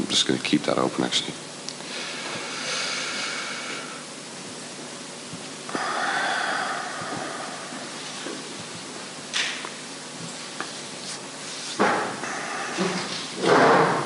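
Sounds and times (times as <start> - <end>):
breaths close to microphone: 5.7 - 8.4.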